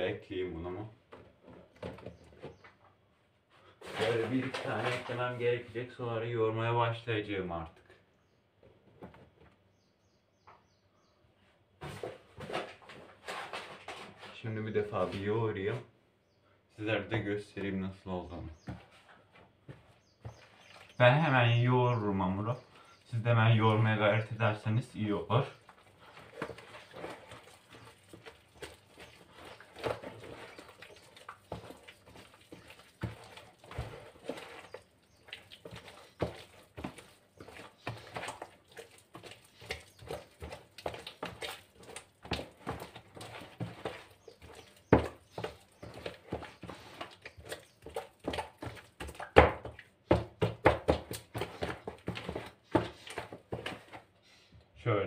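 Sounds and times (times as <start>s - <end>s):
hand kneading dough: 23.3s - 54.2s.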